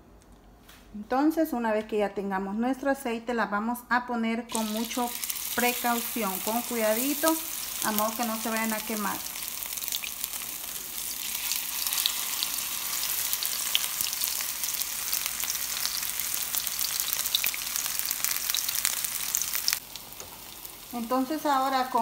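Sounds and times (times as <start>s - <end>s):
patties sizzling in oil: 4.5s - 22.0s.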